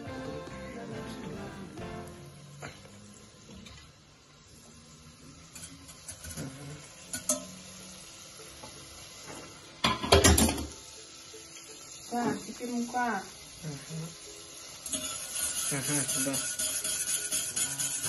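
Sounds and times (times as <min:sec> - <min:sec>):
butter sizzling in saucepan: 0:00.0 - 0:18.0
spoon scraping a pan: 0:14.9 - 0:18.0.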